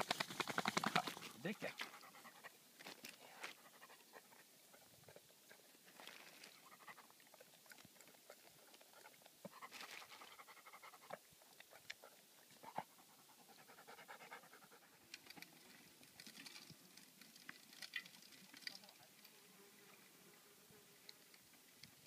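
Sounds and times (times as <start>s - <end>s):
dog panting faintly: 1.2s - 2.6s, 3.2s - 15.5s.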